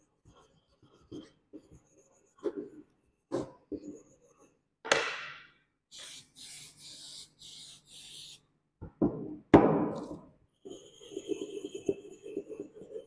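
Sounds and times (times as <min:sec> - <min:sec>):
aerosol spray hissing: 0:05.9 - 0:08.4.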